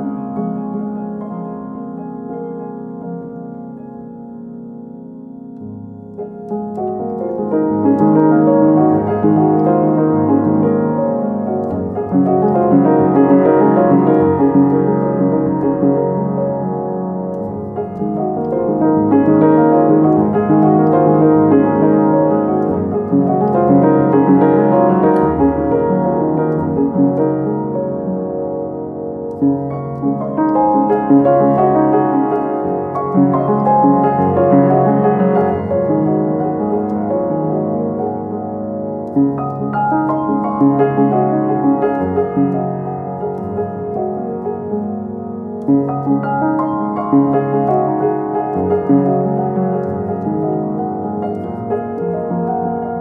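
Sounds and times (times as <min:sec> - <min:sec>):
piano music: 0:00.0 - 0:53.0.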